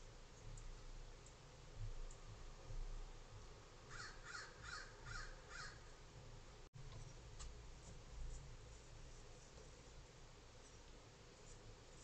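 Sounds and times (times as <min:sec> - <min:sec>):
crow cawing: 0:03.9 - 0:05.9.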